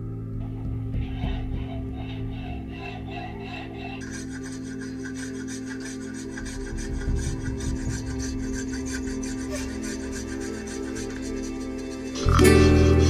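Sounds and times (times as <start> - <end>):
hand plane scraping wood: 2.9 - 13.0.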